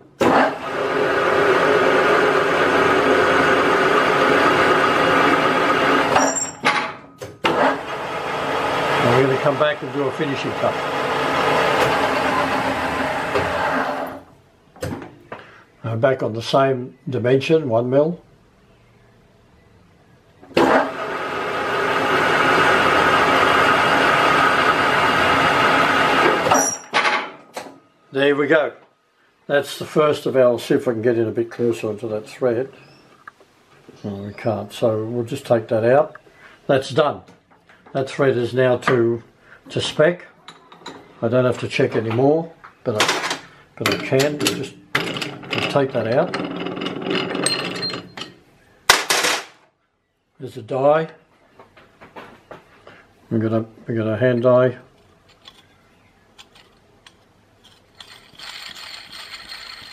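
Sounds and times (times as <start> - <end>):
lathe cutting steel: 7.5 - 14.2, 20.6 - 26.8
metal lathe whining: 7.5 - 14.2, 20.6 - 26.9, 45.0 - 48.3.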